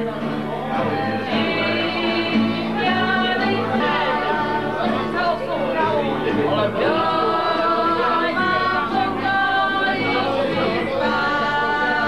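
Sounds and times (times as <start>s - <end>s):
group of voices singing: 0.0s - 12.0s.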